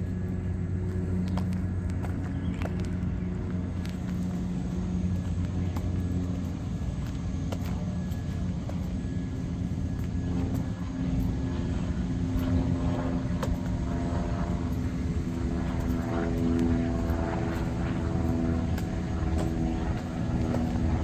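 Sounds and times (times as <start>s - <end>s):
engine droning: 0.0s - 21.0s.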